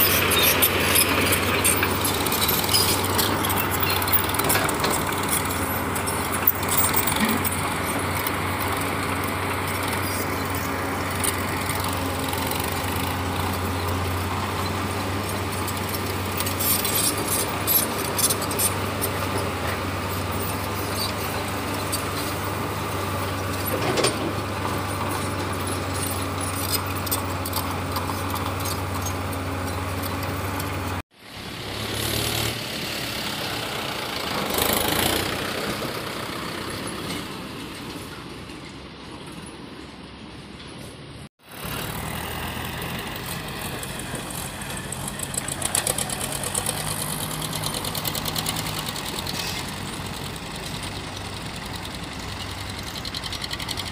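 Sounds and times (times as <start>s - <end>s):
diesel engine running: 0.0s - 38.4s, 41.4s - 53.9s
different engine sound: 0.0s - 39.0s, 41.4s - 53.9s
knocks and clanks: 23.5s - 30.8s.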